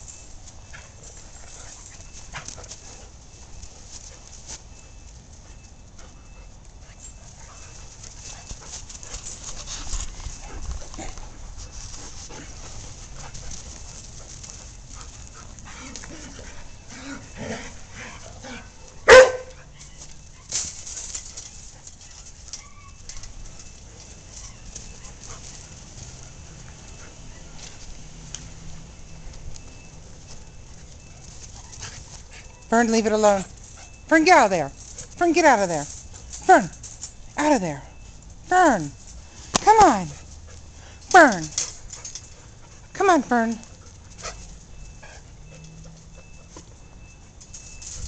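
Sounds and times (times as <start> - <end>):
dogs scuffling: 0.0 - 37.4
dogs growling: 10.4 - 11.6, 15.3 - 18.8
dog barking loudly: 19.0 - 19.6.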